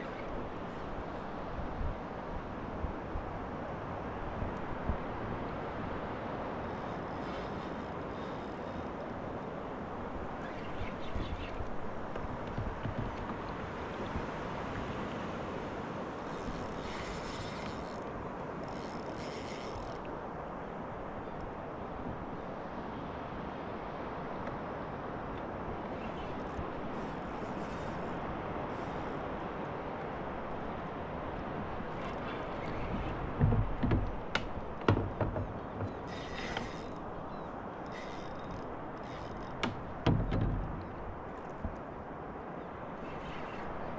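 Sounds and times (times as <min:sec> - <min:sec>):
dull thumps: 0:12.5 - 0:13.5, 0:31.6 - 0:37.0, 0:39.2 - 0:41.0
fishing reel whirring: 0:16.3 - 0:20.0.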